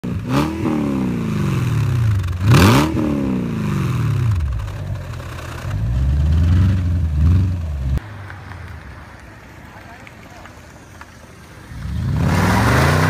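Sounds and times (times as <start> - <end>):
car engine revving: 0.1 - 8.0, 11.7 - 13.0.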